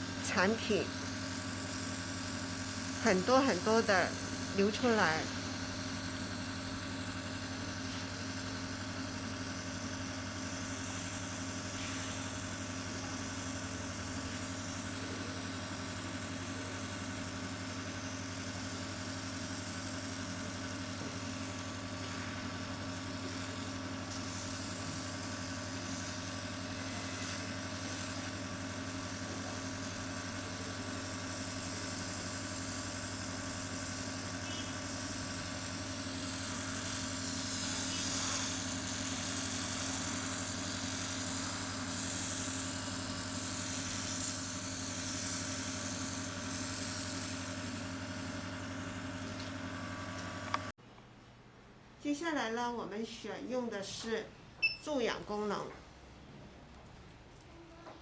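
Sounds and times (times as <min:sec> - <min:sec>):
air pump humming: 0:00.0 - 0:50.7
spray gun hissing: 0:03.1 - 0:15.2, 0:18.8 - 0:29.9, 0:31.0 - 0:50.7.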